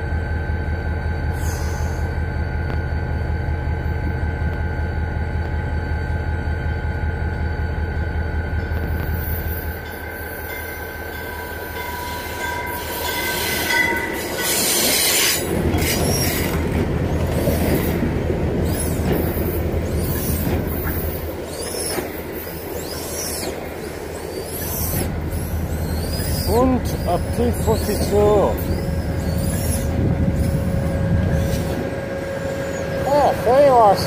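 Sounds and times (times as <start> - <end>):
train low rumble: 0.0 - 34.0
train wheels and brakes squealing: 1.0 - 34.0
steady high tone: 30.6 - 34.0.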